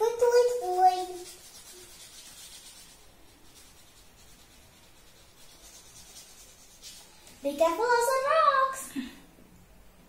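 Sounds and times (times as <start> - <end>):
crayon rubbing on paper: 0.0 - 7.1.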